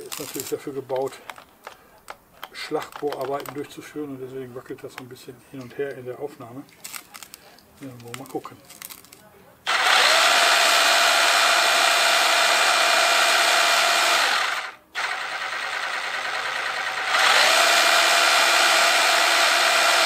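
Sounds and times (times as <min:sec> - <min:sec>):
rotary hammer motor whine: 0:09.7 - 0:20.0.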